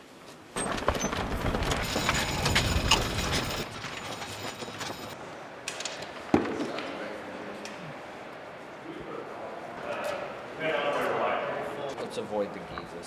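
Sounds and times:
wheeled carts rattling on pavement: 0.6s - 5.2s.

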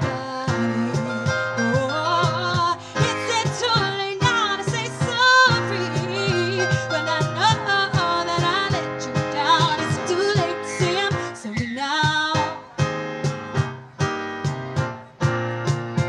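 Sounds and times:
woman singing: 0.0s - 12.8s
cajon beat: 0.0s - 16.0s
electric piano chords: 0.0s - 16.0s.

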